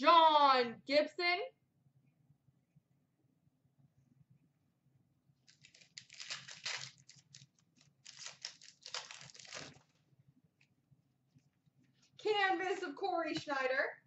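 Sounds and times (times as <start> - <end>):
card pack wrapper tearing: 5.5 - 9.9
wrapper crinkling: 5.5 - 10.0.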